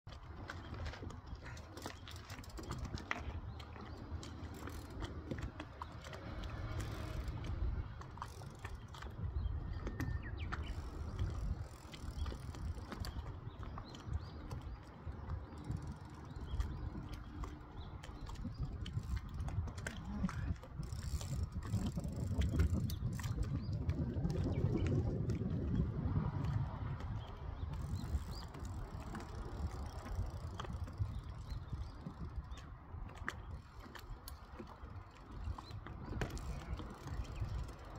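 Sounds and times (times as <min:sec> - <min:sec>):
bike freewheel clicking: 0:20.8 - 0:22.9.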